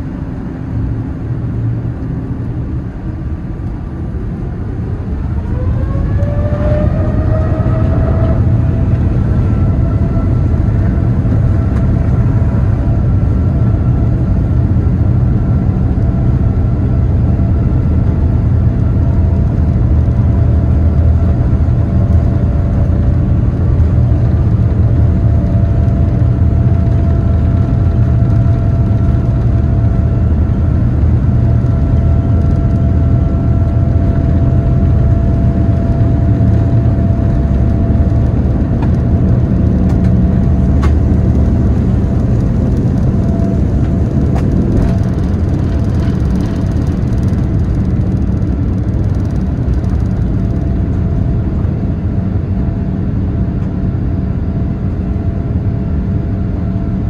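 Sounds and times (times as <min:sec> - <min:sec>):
faint engine tones: 0:00.0 - 0:57.0
jet engine cabin rumble: 0:00.0 - 0:57.0.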